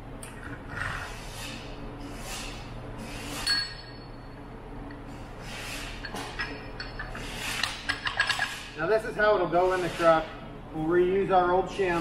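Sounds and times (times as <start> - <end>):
steel gears clinking: 5.9 - 8.7.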